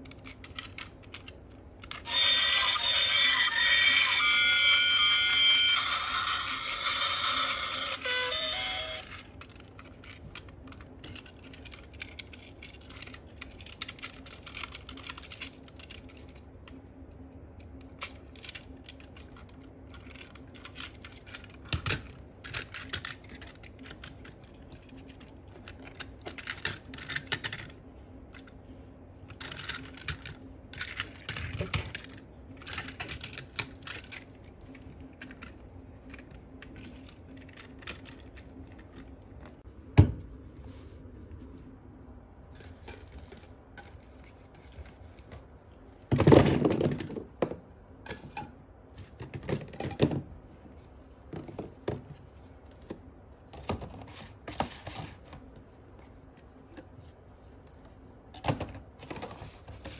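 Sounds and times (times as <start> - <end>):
plastic toy parts clicking: 0.0 - 16.8, 17.6 - 28.5, 29.3 - 39.5.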